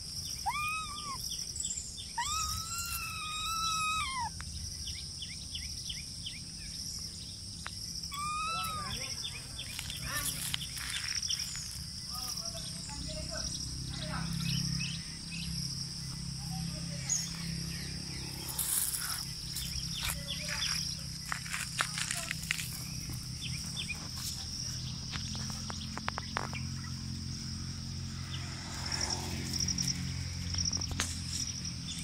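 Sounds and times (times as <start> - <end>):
insects chirping: 0.0 - 32.0
scuffs on gravel: 8.6 - 12.7, 18.2 - 26.6.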